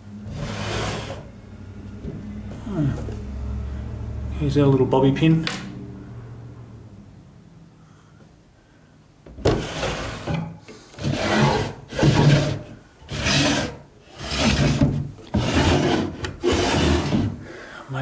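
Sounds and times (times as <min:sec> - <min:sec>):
wooden drawers scraping: 0:00.2 - 0:01.3, 0:09.3 - 0:17.4.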